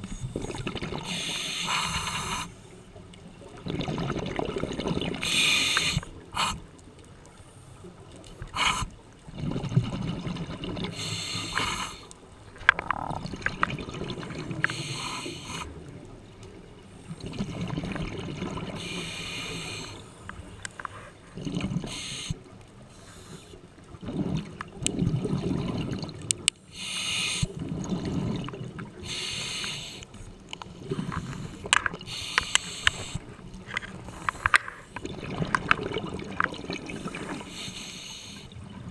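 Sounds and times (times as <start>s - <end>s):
regulator hissing inhales: 1.1s - 2.7s, 5.2s - 6.6s, 11.0s - 12.1s, 14.6s - 15.7s, 18.8s - 21.2s, 21.9s - 23.6s, 26.7s - 27.5s, 29.0s - 30.3s, 31.1s - 33.3s, 37.3s - 38.5s
bubbling exhales: 3.6s - 6.7s, 8.5s - 15.8s, 17.1s - 20.0s, 21.0s - 22.4s, 24.0s - 30.0s, 33.9s - 38.9s.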